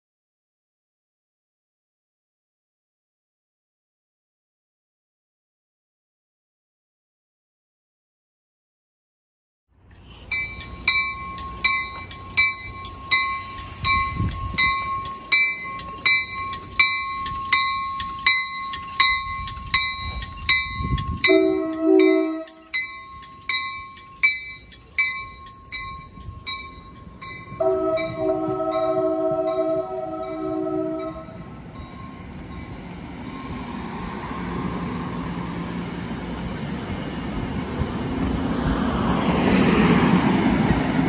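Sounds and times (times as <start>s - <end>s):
train warning bell ringing: 10.0s - 35.9s
train horn: 21.3s - 22.7s, 27.6s - 31.5s.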